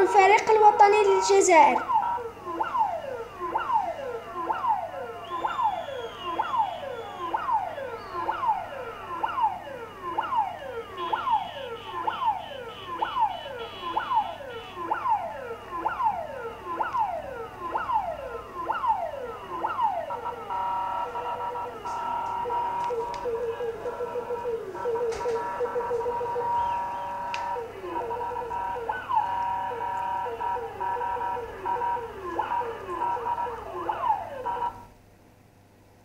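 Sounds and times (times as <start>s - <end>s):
police siren through tv speaker: 0.0s - 34.9s.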